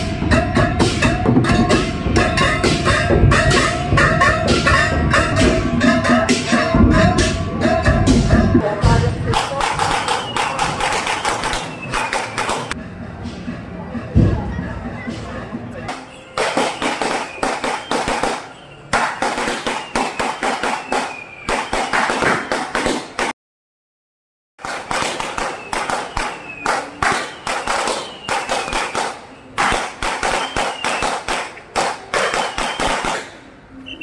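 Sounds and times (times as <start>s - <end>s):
firecrackers crackling: 8.2s - 12.8s, 15.8s - 23.3s, 24.6s - 34.0s
falling whistles: 10.0s - 12.8s, 16.2s - 18.9s, 19.6s - 22.7s, 25.4s - 29.4s, 30.2s - 31.1s, 32.2s - 33.0s, 33.8s - 34.0s.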